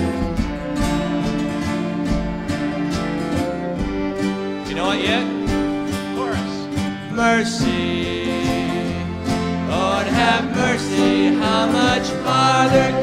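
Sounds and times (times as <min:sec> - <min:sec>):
acoustic guitars strumming: 0:00.0 - 0:13.0
banjo: 0:00.0 - 0:13.0
fiddle playing lead: 0:00.0 - 0:13.0
person singing: 0:04.6 - 0:13.0.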